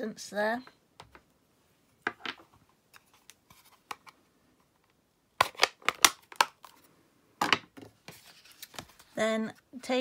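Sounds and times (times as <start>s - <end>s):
cardstock rustling and snapping: 5.4s - 6.8s.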